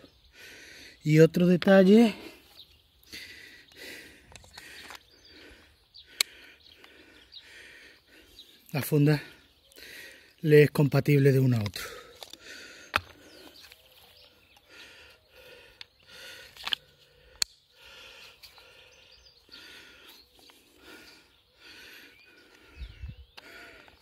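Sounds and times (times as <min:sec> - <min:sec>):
faint bird chirps: 0:12.0 - 0:16.5.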